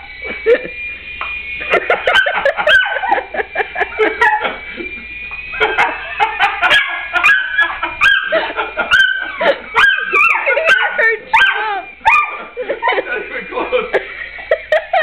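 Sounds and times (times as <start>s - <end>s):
thin high whine: 0.0s - 15.0s
dogs barking and yelping: 1.8s - 4.5s, 5.6s - 13.0s.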